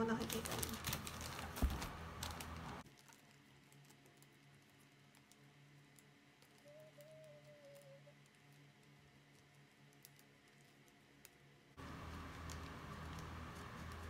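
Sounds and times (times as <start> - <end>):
plastic and paper rustling: 0.0 - 9.4.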